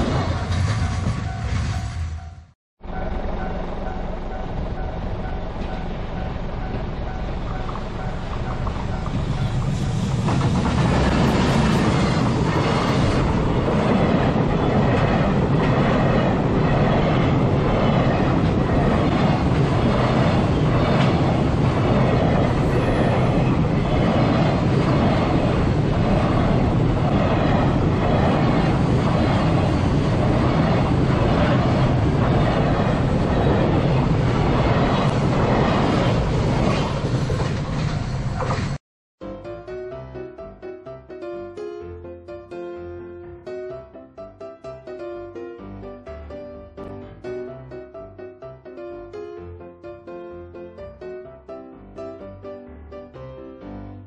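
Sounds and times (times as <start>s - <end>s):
freight train passing: 0.0s - 38.8s.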